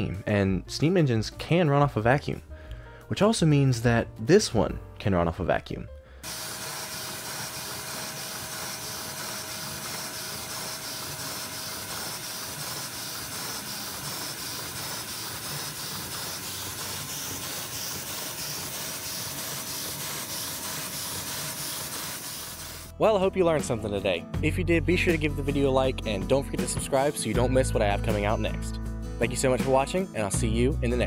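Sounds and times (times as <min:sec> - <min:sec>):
air hissing through model engine: 0:06.2 - 0:22.9.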